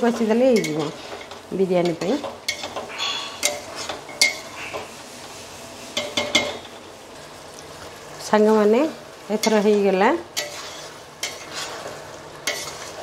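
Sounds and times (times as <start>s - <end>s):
metal ladle scraping pot: 0.4s - 4.9s, 9.4s - 13.0s.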